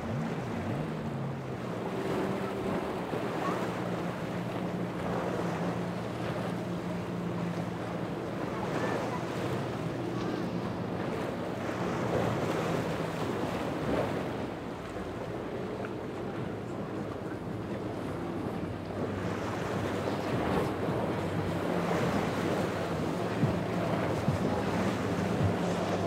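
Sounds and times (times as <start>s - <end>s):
powerboat engines humming: 0.0s - 26.0s
waves washing: 0.0s - 26.0s
wind buffeting microphone: 0.0s - 26.0s.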